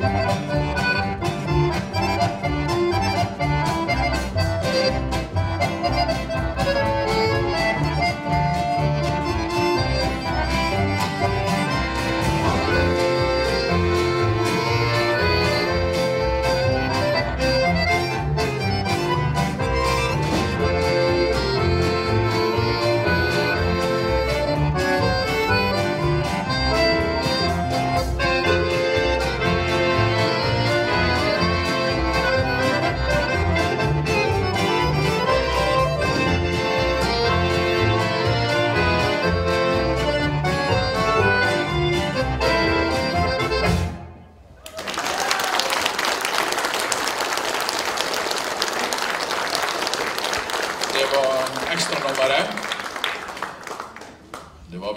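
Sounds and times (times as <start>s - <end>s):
polka band with accordions: 0.0s - 44.5s, 46.0s - 54.6s
audience applause: 44.6s - 54.7s.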